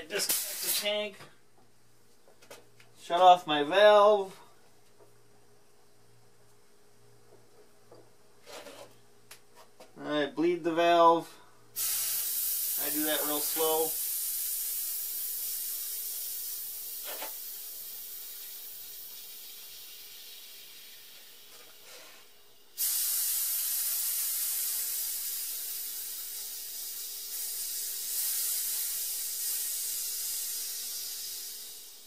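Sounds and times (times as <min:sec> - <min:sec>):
compressed air hissing from valve: 0:00.0 - 0:01.0, 0:11.8 - 0:32.0.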